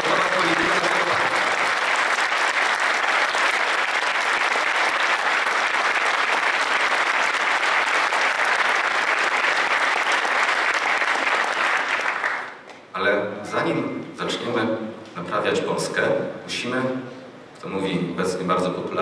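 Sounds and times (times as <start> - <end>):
audience applauding: 0.0 - 12.7.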